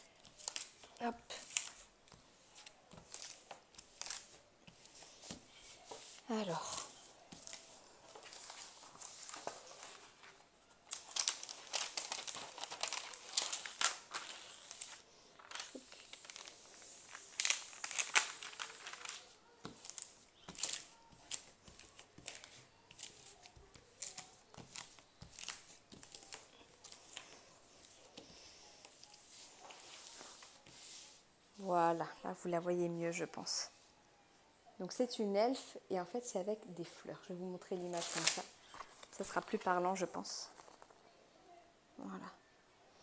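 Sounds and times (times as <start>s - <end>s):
plastic film crinkling: 0.0s - 31.1s, 37.8s - 41.0s.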